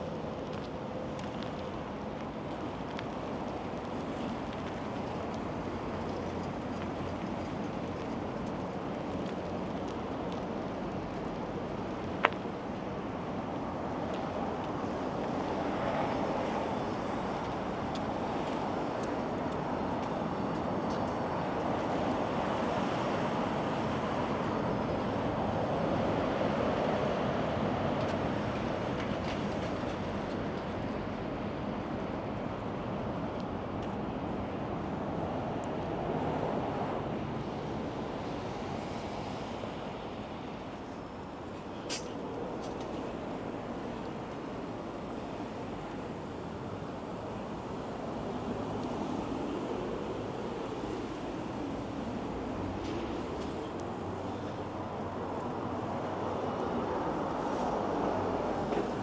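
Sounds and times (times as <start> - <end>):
bicycle tyres rolling: 0.0 - 24.4, 37.5 - 59.0.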